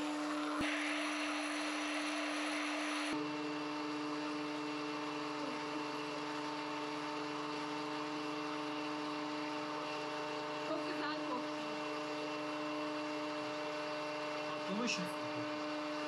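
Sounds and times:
popcorn maker blower fan: 0.0s - 16.0s.

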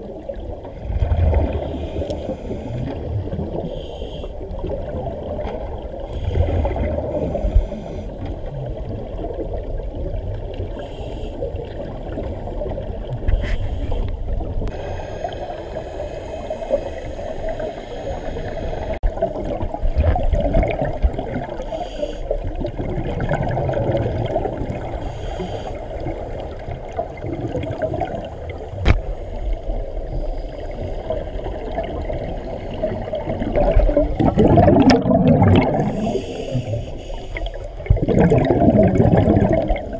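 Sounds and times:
gurgle of exhaled bubbles: 0.0s - 3.7s, 4.5s - 10.7s, 18.8s - 21.7s, 22.4s - 25.0s, 26.0s - 29.0s, 31.0s - 36.8s, 37.4s - 39.9s
low underwater rumble: 26.0s - 39.9s.

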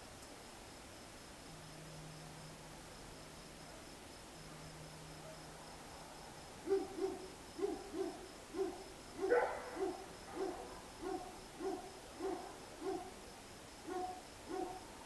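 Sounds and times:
distant dog barking: 6.6s - 13.2s, 13.8s - 14.9s.

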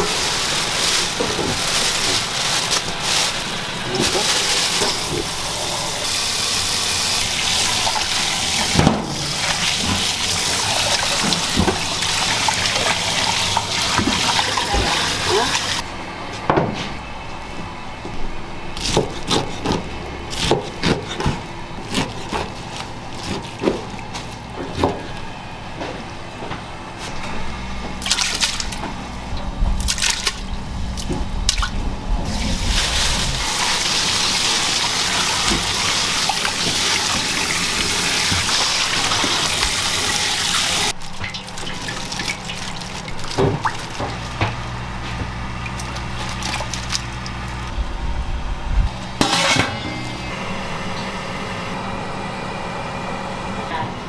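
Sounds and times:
water running: 0.0s - 15.8s, 32.3s - 44.3s
utensils knocking and clattering: 49.2s - 50.1s.

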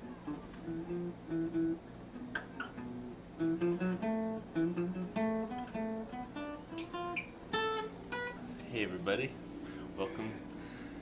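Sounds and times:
fingerstyle acoustic guitar: 0.0s - 8.8s.

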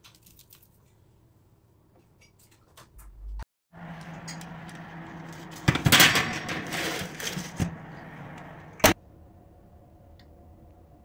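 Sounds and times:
oven fan humming: 3.8s - 10.8s
metal baking tray scraping: 4.2s - 8.6s.

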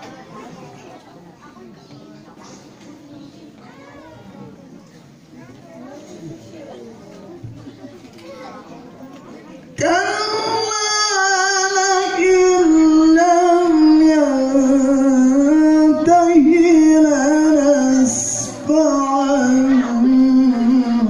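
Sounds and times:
person chanting melodically: 9.8s - 21.0s.

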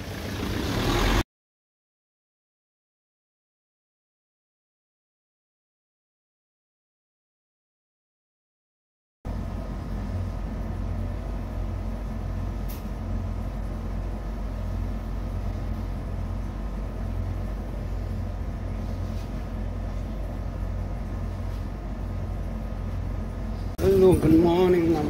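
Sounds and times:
window air conditioner humming: 9.3s - 25.0s.

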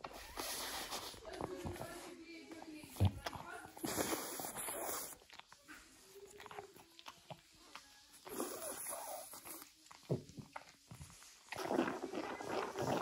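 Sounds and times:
dog snuffling: 0.0s - 2.3s, 2.9s - 5.4s.

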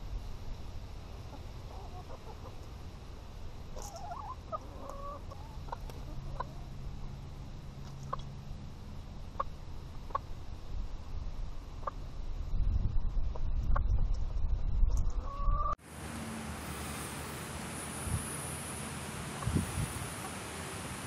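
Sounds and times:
hens clucking: 1.3s - 2.7s, 3.8s - 6.7s.

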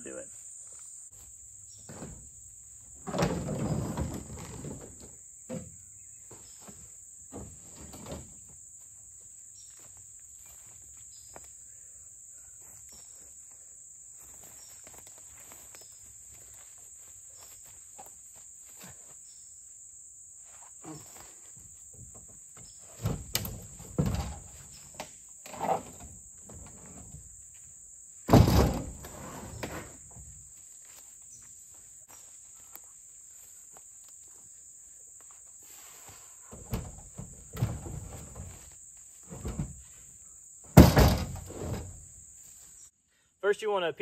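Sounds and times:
insects chirring: 0.0s - 44.0s
logs thumping onto truck tailgate: 1.8s - 2.3s, 21.9s - 27.2s, 28.3s - 30.3s, 36.5s - 38.6s, 39.3s - 39.8s, 40.6s - 42.1s.

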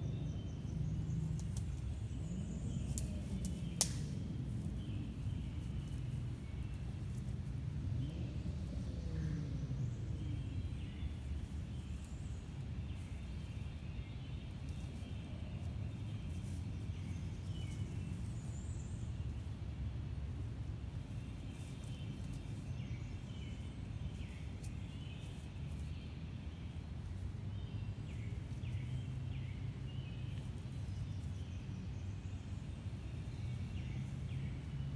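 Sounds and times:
birds chirping: 0.0s - 34.9s
steady low rumble: 0.0s - 34.9s.

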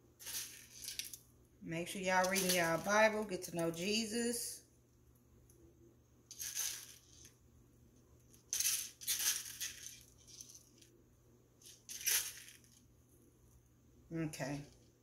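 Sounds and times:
sprinkles rattling in plastic container: 0.2s - 1.2s, 2.2s - 2.9s, 6.3s - 7.3s, 8.5s - 10.6s, 11.8s - 12.7s.

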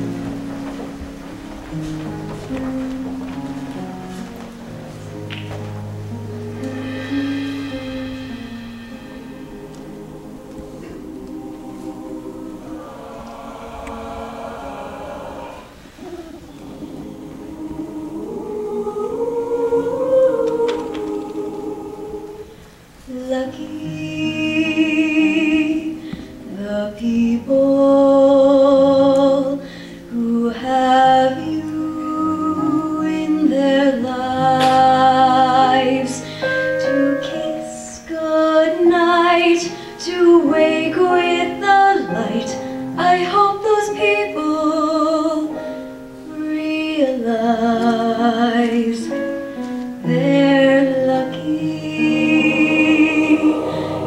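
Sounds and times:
choir singing in harmony: 0.0s - 54.0s
woman singing into a microphone: 23.1s - 45.6s, 46.3s - 49.2s, 50.0s - 54.0s.

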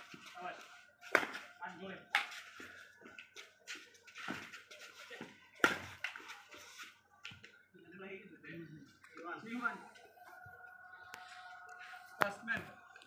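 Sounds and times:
rackets striking shuttlecock: 1.1s - 1.5s, 5.6s - 6.3s
soft taps and scuffs: 2.2s - 7.6s.

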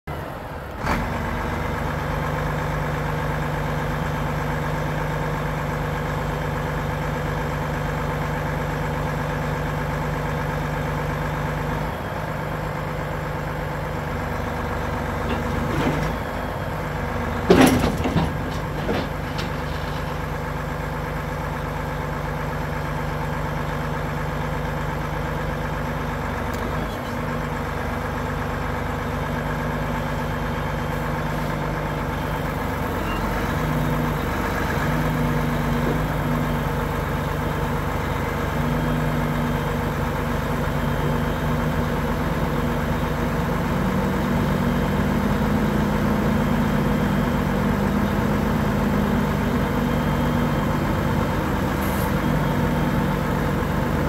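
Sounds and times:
diesel truck engine running: 0.0s - 54.0s
hydraulic crane unfolding: 17.3s - 20.6s.

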